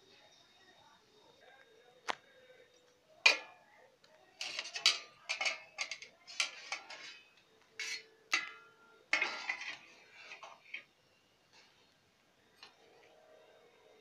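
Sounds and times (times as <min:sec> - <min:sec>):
metal lid rattling on pan: 0:04.4 - 0:10.8
soup boiling: 0:04.4 - 0:10.9.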